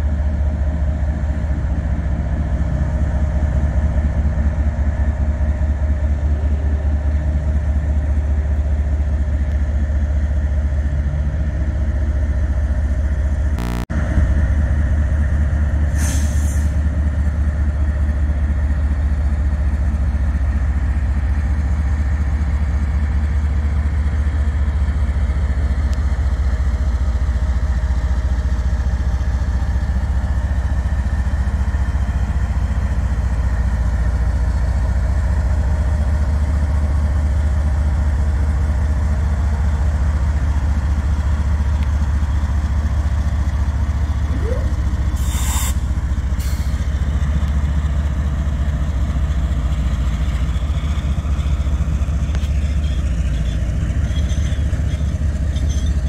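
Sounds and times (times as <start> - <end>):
diesel locomotive engine rumbling: 0.0 - 56.0
short hiss: 45.2 - 45.8.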